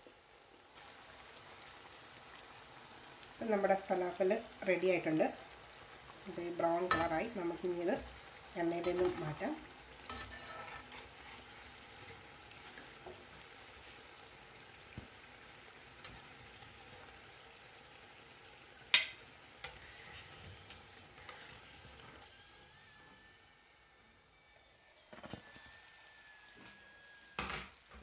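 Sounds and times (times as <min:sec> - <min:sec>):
patties sizzling in oil: 0:00.0 - 0:28.0
metal spatula scraping a pan: 0:08.8 - 0:13.2, 0:18.9 - 0:23.3.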